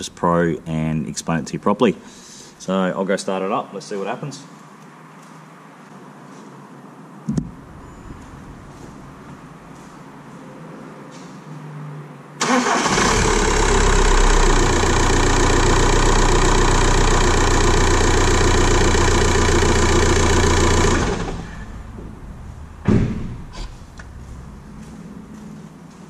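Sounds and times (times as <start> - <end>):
sharp thump: 7.3 - 7.6, 22.8 - 24.1
diesel engine starting and idling: 12.4 - 25.4.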